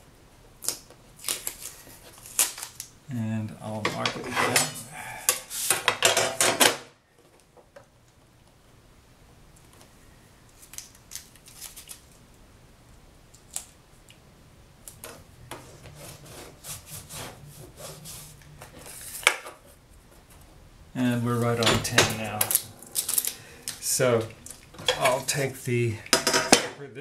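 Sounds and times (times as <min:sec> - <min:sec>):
metallic clatter of tools: 0:21.6 - 0:25.2.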